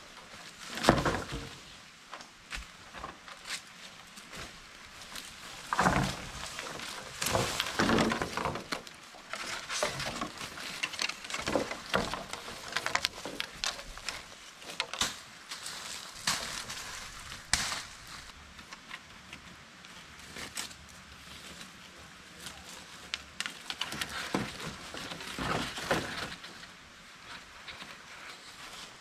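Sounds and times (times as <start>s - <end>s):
bamboo poles knocking together: 0.7s - 1.6s, 5.6s - 15.2s, 16.1s - 18.9s
leaf litter crunching underfoot: 3.4s - 18.4s
sharp crack: 16.2s - 18.3s.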